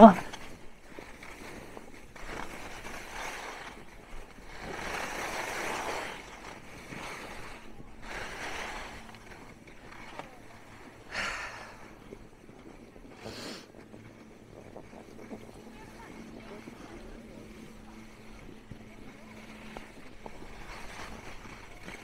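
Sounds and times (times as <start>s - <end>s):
skis scraping over snow: 0.0s - 22.0s
wind noise on microphone: 10.9s - 22.0s.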